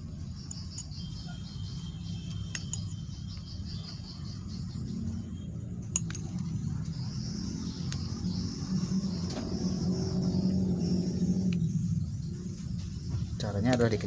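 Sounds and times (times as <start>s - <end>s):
light metallic clicks and clinks: 0.4s - 1.2s, 2.3s - 3.5s, 5.8s - 6.6s.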